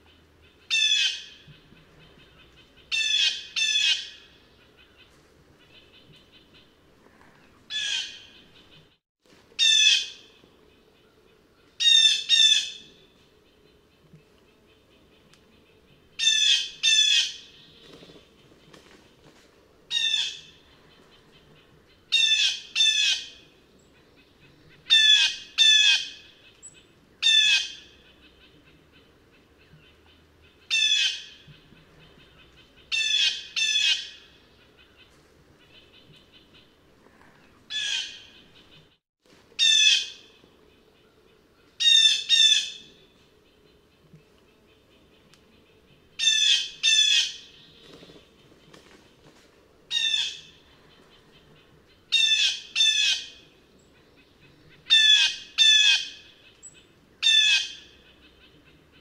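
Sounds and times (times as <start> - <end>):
blue jay harsh calls: 0.7 - 1.4, 30.7 - 31.4, 32.9 - 34.3, 37.7 - 38.4, 52.1 - 53.4, 54.9 - 56.3, 57.2 - 58.0.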